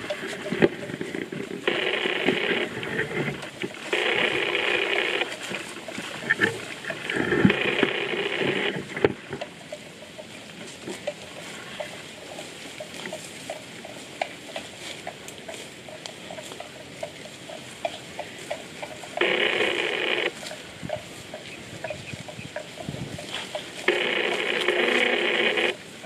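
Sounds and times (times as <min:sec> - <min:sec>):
rasping noise: 0:00.0 - 0:09.6, 0:18.2 - 0:25.8.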